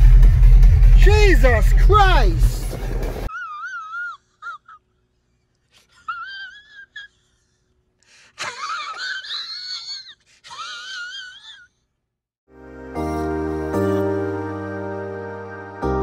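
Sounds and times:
man crying in falsetto wail: 0:03.3 - 0:04.9, 0:08.4 - 0:11.7.

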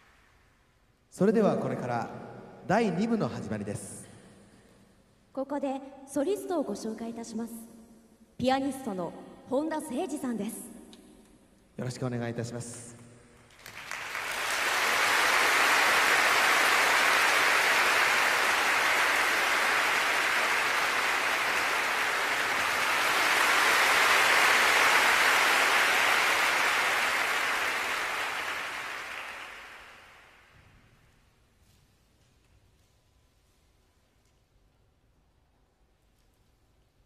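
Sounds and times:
audience applauding: 0:13.5 - 0:30.5.

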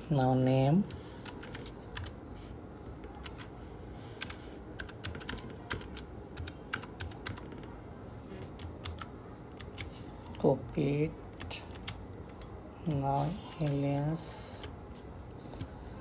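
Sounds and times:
computer keyboard typing: 0:00.8 - 0:02.2, 0:03.1 - 0:07.7, 0:08.4 - 0:10.4, 0:11.3 - 0:14.8.

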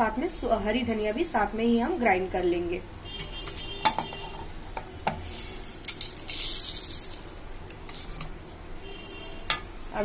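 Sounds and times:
seeds rattling into jar: 0:05.4 - 0:08.2.

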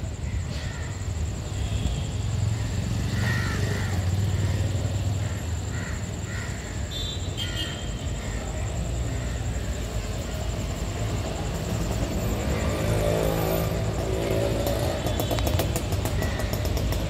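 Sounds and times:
distant traffic rumble: 0:00.0 - 0:17.0
crows cawing: 0:00.2 - 0:01.0, 0:02.5 - 0:09.7, 0:16.1 - 0:17.0.

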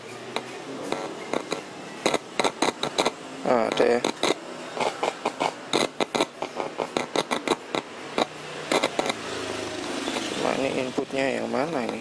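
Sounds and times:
speaker crackling and popping: 0:00.9 - 0:09.2.

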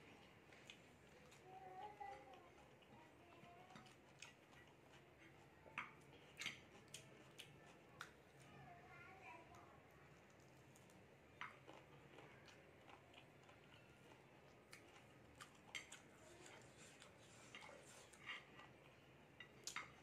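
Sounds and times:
faint chewing and mouth sounds: 0:00.0 - 0:20.0
small clicks and smacks: 0:00.5 - 0:08.2, 0:09.4 - 0:13.0, 0:14.6 - 0:18.7, 0:19.4 - 0:20.0.

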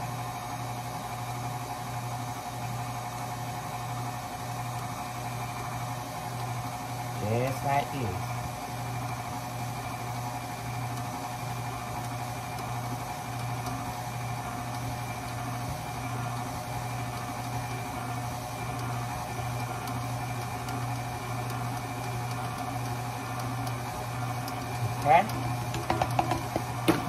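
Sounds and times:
stand mixer motor humming: 0:00.0 - 0:27.0
whisk beating in steel bowl: 0:10.6 - 0:27.0.

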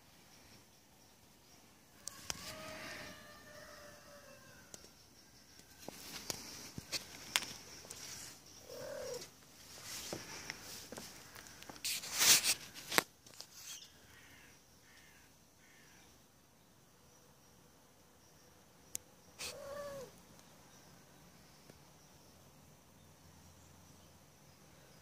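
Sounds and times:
short animal call: 0:19.4 - 0:20.1.

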